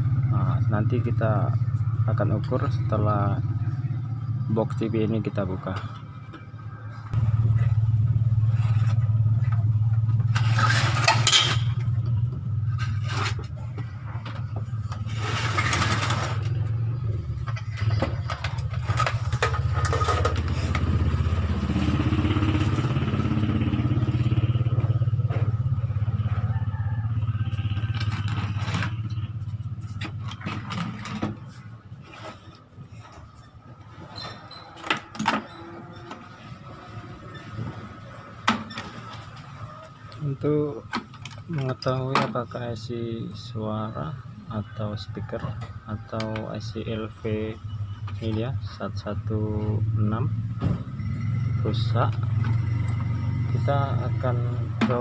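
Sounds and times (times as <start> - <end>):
motorcycle engine idling: 0.0 - 10.3, 16.6 - 30.4.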